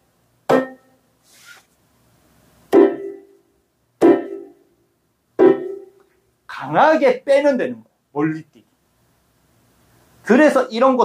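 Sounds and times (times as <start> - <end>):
electronic keyboard forceful strikes: 0.5 - 0.9, 2.7 - 3.3, 4.0 - 4.6, 5.4 - 6.0.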